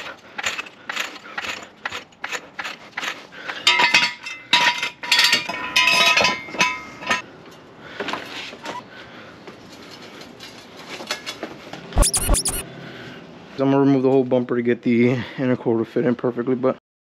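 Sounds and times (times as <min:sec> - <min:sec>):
regular clicks: 0:12.0 - 0:12.6.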